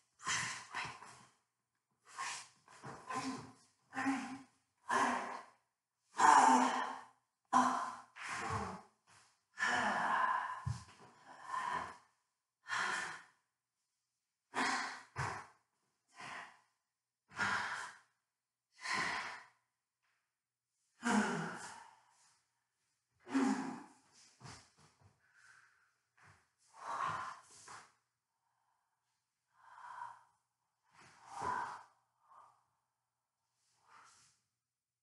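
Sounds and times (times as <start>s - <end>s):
woman gasping and sighing: 21.0s - 22.2s.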